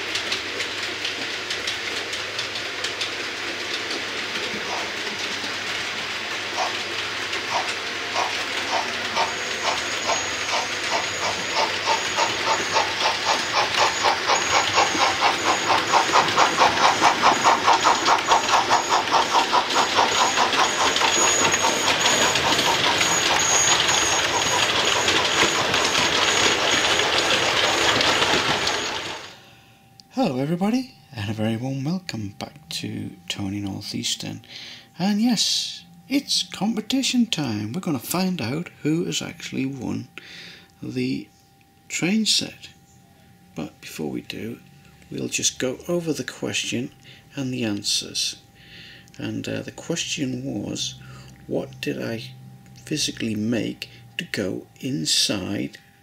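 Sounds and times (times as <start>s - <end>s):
model train wheels clicking: 0.0s - 29.4s
high motor whine: 0.0s - 30.1s.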